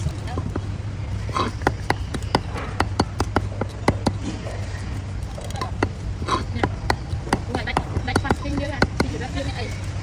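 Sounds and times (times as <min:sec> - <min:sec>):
cleaver chopping on wooden block: 0:01.3 - 0:04.5, 0:05.6 - 0:09.3.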